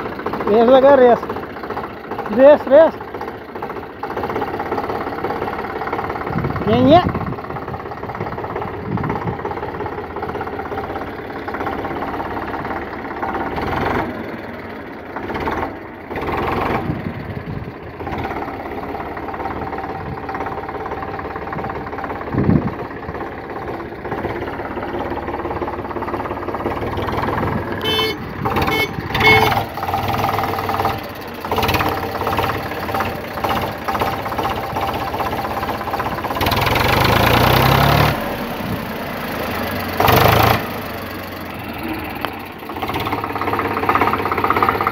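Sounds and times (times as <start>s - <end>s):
tractor diesel engine running: 0.0s - 44.9s.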